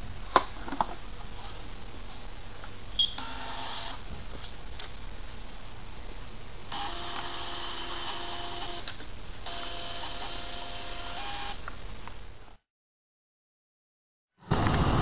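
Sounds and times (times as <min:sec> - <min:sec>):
low background noise: 0:00.0 - 0:12.6
thermal printer whining: 0:06.7 - 0:11.6.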